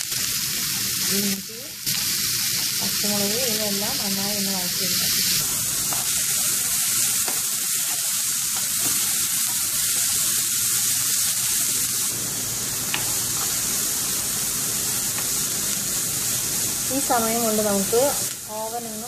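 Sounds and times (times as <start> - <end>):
vegetables sizzling in hot oil: 0.0 - 19.0
spatula stirring in a pan: 5.4 - 11.6.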